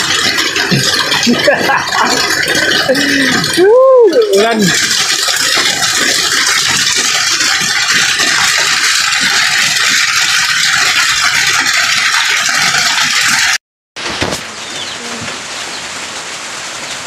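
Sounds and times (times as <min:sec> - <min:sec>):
heavy rain falling: 0:00.0 - 0:10.1, 0:14.0 - 0:17.0.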